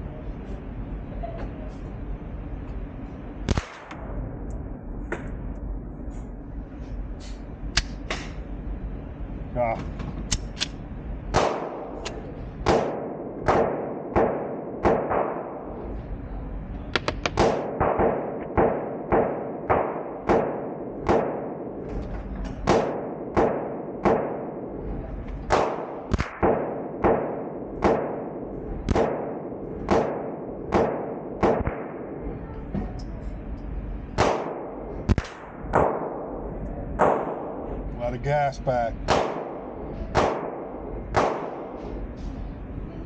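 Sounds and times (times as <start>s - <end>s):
suppressed gunshots echoing indoors: 3.3s - 6.5s, 10.1s - 15.9s, 16.9s - 32.9s, 34.0s - 37.9s, 39.0s - 42.4s.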